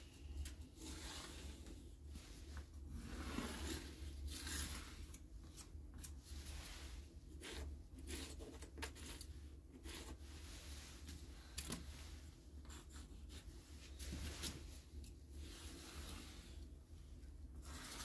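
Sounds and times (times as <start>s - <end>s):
cardboard sliding across a board: 0.8s - 5.0s
pencil scratching on cardboard: 7.3s - 10.3s.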